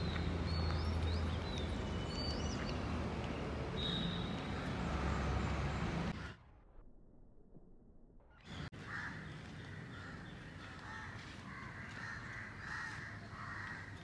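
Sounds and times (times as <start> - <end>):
small birds chirping: 0.0 - 5.9
distant traffic rumble: 0.0 - 6.4.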